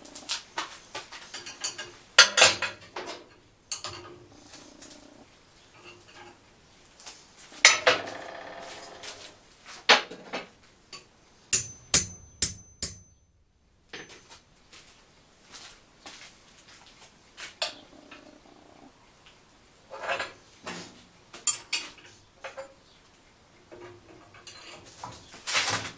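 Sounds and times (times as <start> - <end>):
steel parts clanking on workbench: 1.3 - 4.1
hammer strikes on metal: 11.5 - 13.3.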